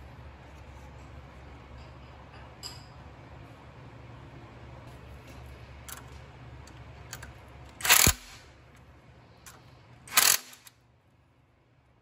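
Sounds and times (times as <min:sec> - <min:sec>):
impact wrench bursts: 0:07.8 - 0:08.4, 0:10.1 - 0:10.7.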